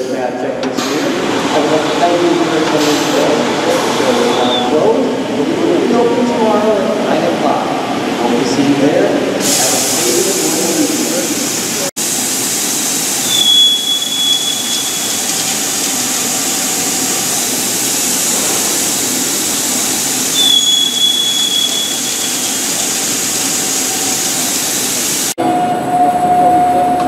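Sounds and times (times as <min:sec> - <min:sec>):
plasma torch hissing: 0:09.4 - 0:25.4
thin high whine: 0:17.0 - 0:24.2.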